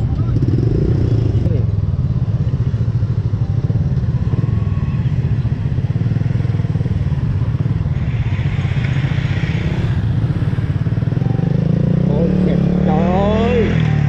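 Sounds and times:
motorcycle engine running: 0:00.0 - 0:14.0
rushing hiss: 0:08.0 - 0:10.1.

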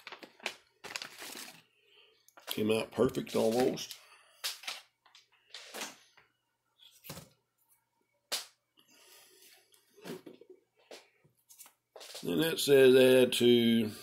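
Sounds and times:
packets tapping and rustling: 0:00.0 - 0:01.6.

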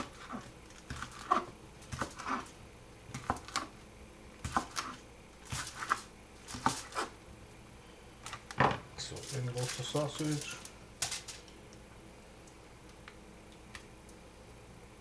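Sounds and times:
knife slicing sausage on board: 0:00.0 - 0:02.5, 0:04.4 - 0:07.2.

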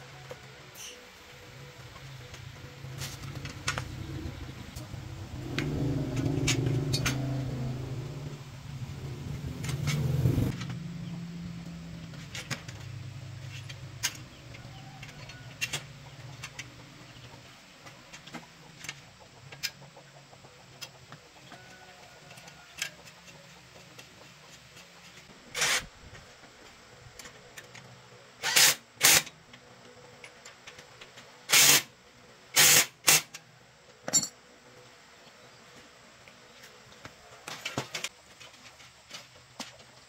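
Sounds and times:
motor engine humming: 0:01.2 - 0:15.1.

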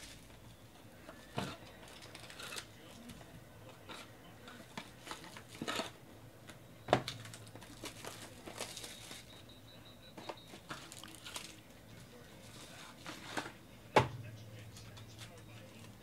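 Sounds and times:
plastic wrappers crinkling and tearing: 0:07.1 - 0:09.3, 0:10.7 - 0:11.6.

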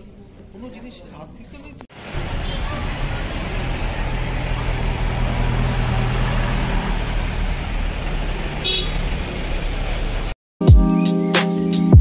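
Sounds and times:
vehicle engines running: 0:00.0 - 0:10.4
car horn toot: 0:02.2 - 0:03.2, 0:08.6 - 0:09.2.

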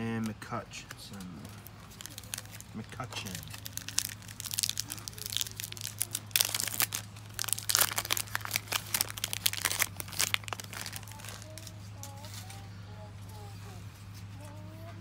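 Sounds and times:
foil wrapper crinkling: 0:01.4 - 0:12.6.

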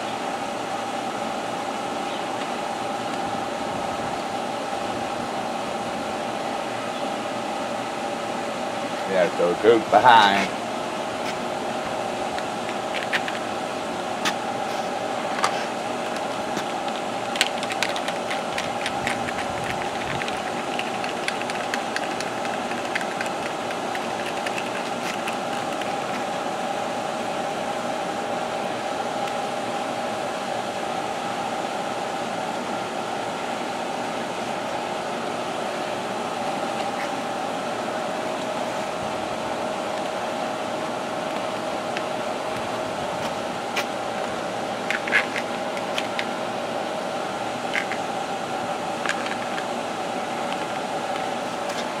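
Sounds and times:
steady machine hum: 0:00.0 - 0:52.0
plastic toy parts clicking: 0:16.1 - 0:26.2, 0:49.0 - 0:49.6.

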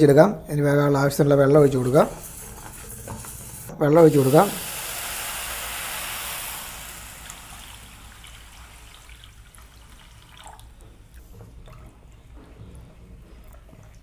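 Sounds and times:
water hissing in hot pan: 0:01.8 - 0:09.5.

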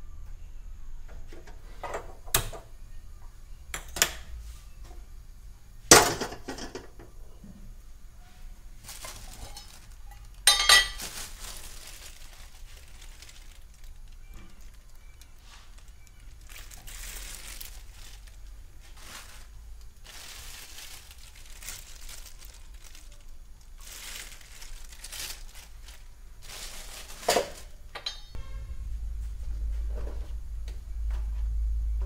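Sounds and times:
low steady rumble: 0:02.6 - 0:32.0
crinkly rustling: 0:08.2 - 0:27.9
sharp metal clank: 0:28.0 - 0:28.6.

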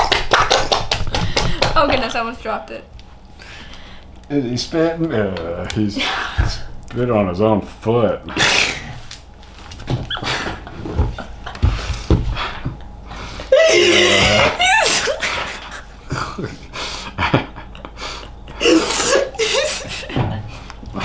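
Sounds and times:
girl laughing: 0:13.5 - 0:20.5
man laughing: 0:13.5 - 0:21.0.

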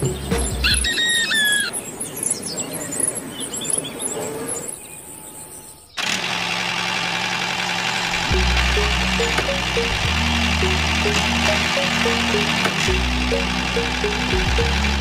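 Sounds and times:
small birds chirping: 0:00.0 - 0:06.0
bird squealing call: 0:00.6 - 0:01.8.

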